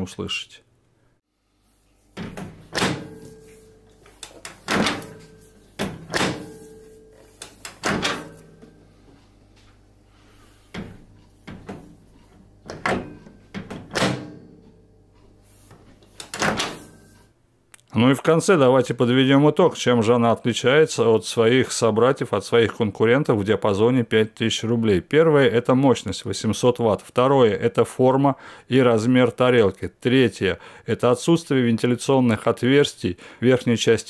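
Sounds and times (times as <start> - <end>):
microwave door latch clacking: 2.2 - 3.3, 4.2 - 6.5, 7.6 - 8.4, 12.7 - 14.4.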